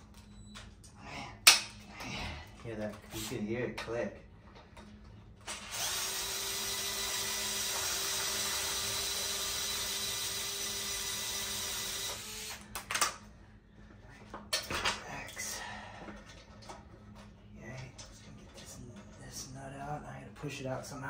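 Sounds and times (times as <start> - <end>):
cordless drill whining: 5.5 - 12.7.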